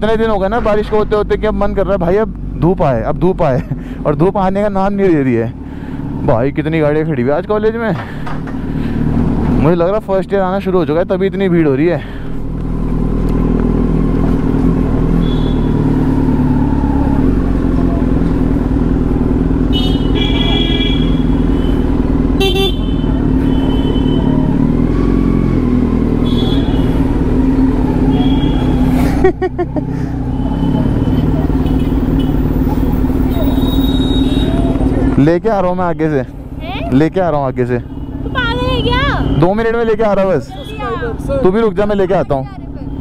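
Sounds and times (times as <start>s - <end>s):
motorcycle engine at low revs: 10.6s - 33.3s.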